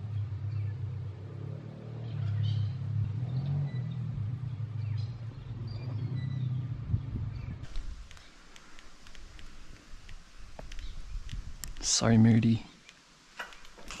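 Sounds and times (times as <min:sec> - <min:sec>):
low rumble: 0:02.2 - 0:08.1.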